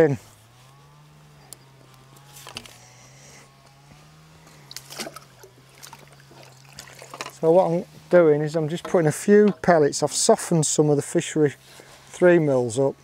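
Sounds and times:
low steady hum: 0.0s - 13.0s
fishing tackle knocks and rustles: 4.7s - 7.4s.

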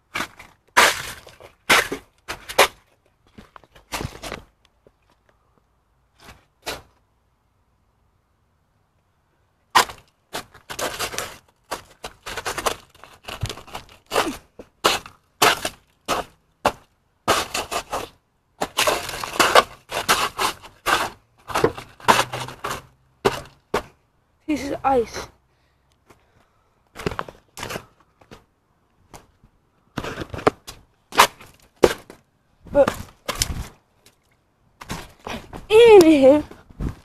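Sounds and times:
ice cracking and scraping: 0.1s - 4.5s, 9.7s - 23.9s, 32.8s - 37.0s.

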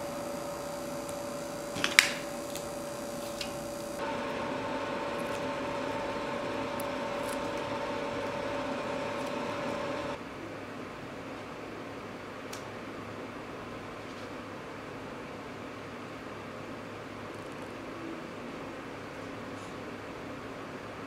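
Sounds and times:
steady mechanical hum: 0.0s - 21.0s
sharp clicks of tape handling: 1.0s - 4.1s.

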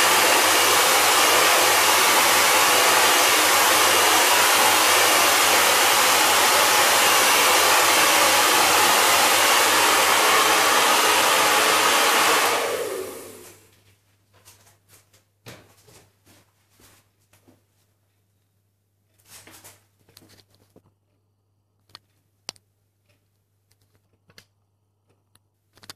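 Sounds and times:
hair dryer blowing: 0.0s - 13.6s.

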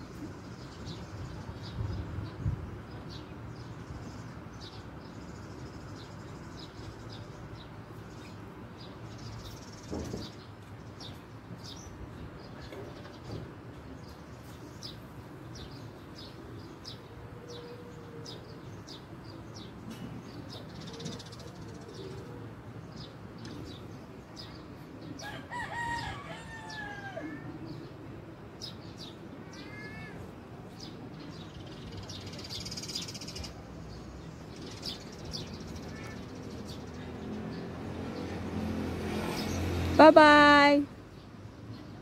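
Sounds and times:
small birds chirping: 0.0s - 42.0s
rooster crowing: 25.2s - 27.5s.

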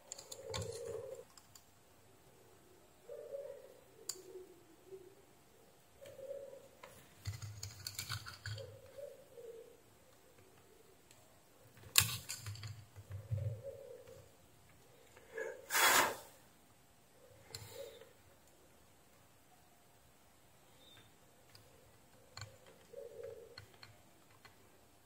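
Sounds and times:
short hissing burst: 15.7s - 16.4s.

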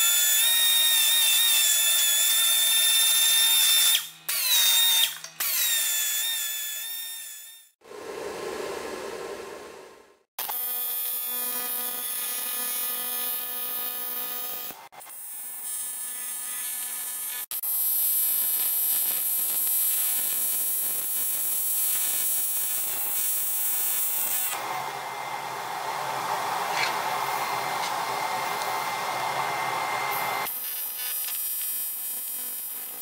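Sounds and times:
welding arc buzzing: 10.4s - 24.7s, 26.0s - 33.0s.

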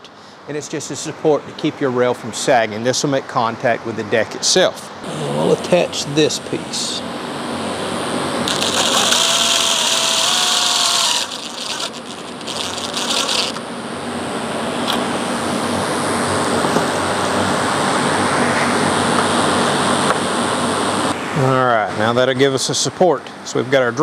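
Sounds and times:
cordless drill whining: 8.5s - 13.6s
steady rushing noise: 15.4s - 21.3s.

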